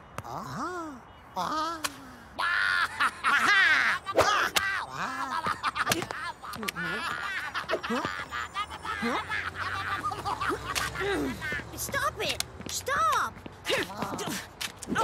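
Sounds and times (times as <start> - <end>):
creatures chattering and giggling: 0.3 - 11.9.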